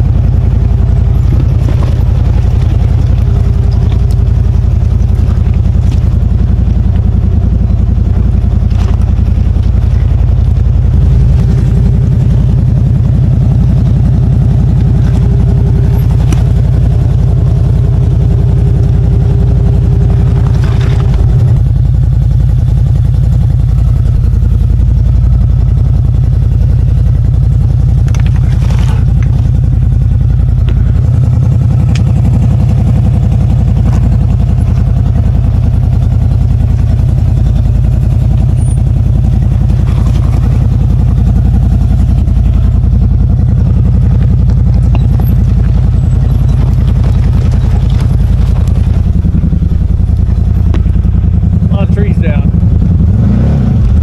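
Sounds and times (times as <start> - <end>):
vehicle engine running: 0.0 - 54.0.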